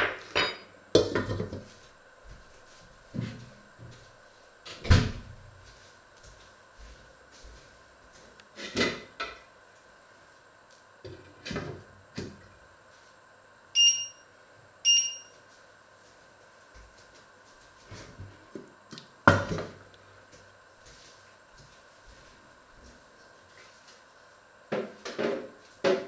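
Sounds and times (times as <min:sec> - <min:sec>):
short electronic beeps: 0:13.8 - 0:14.2, 0:14.9 - 0:15.3.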